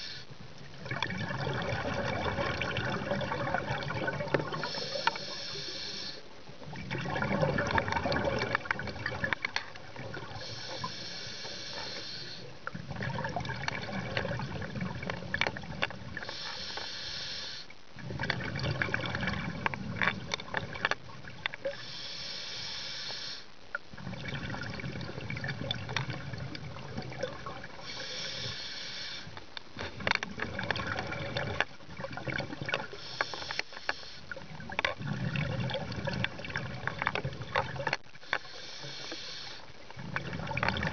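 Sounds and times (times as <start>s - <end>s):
regulator inhale hiss: 0.0s - 0.3s, 4.5s - 6.3s, 10.3s - 12.6s, 16.2s - 17.8s, 21.7s - 23.6s, 27.8s - 29.4s, 32.9s - 34.4s, 38.2s - 39.7s
exhaust bubbles gurgling: 0.8s - 5.0s, 6.7s - 10.4s, 12.7s - 16.2s, 18.0s - 21.4s, 24.0s - 27.8s, 30.1s - 33.0s, 34.4s - 38.0s, 39.9s - 40.9s.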